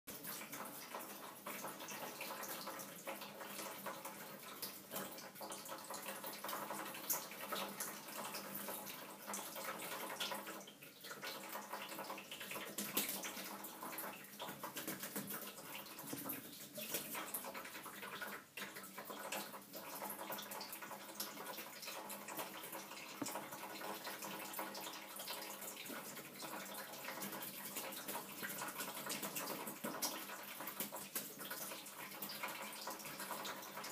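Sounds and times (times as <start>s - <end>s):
tap running into tray of water: 0.2s - 33.9s.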